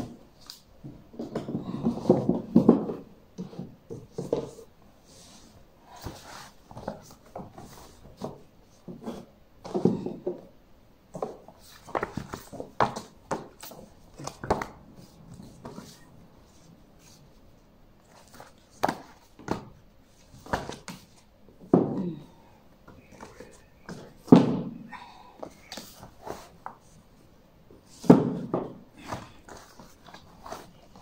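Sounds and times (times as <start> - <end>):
books thudding on wood: 23.9 - 24.8, 28.0 - 29.4.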